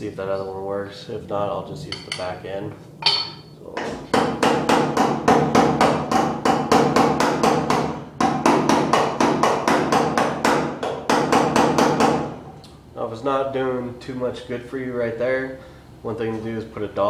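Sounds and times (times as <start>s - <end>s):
hammer tapping sheet metal: 3.0s - 12.3s.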